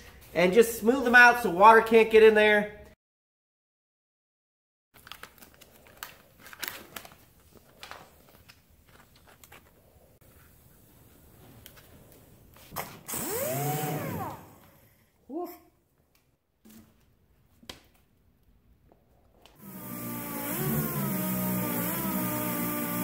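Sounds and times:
sander running with a hiss: 0:13.1 - 0:14.7, 0:19.6 - 0:23.0.

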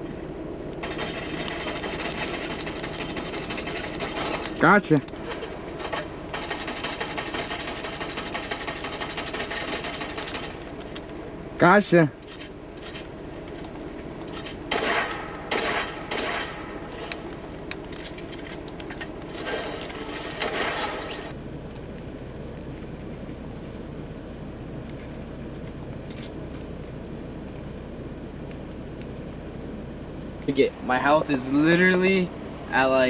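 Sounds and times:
steady low hum: 0:00.0 - 0:33.0
video game gunfire: 0:05.8 - 0:10.5, 0:14.7 - 0:17.1, 0:19.4 - 0:21.3.

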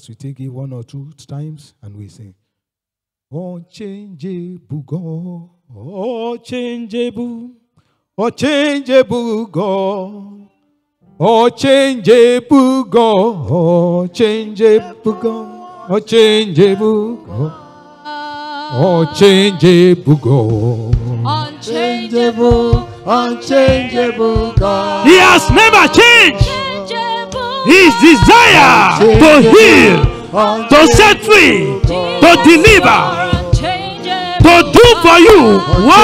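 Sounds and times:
person singing worship song: 0:11.2 - 0:36.0.

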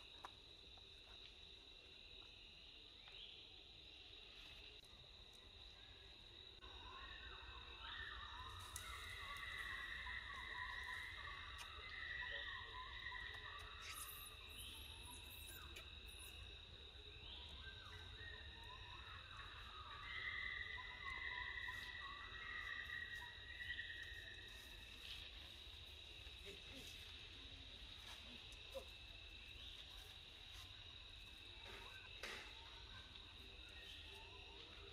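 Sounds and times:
insects droning: 0:00.0 - 0:34.9
insect rising calls: 0:07.1 - 0:16.6.

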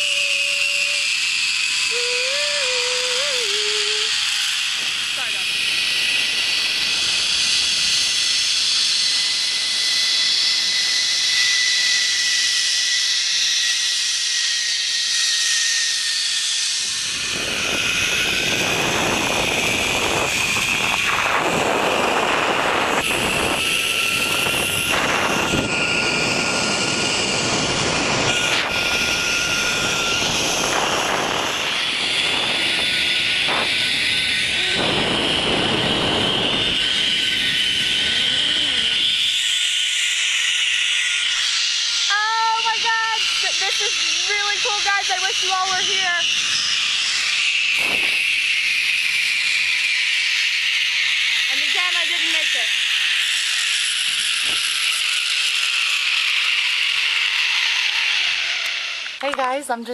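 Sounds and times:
zipline trolley whirring on cable: 0:00.0 - 0:59.9
wind buffeting microphone: 0:16.8 - 0:39.2, 0:47.8 - 0:48.8.

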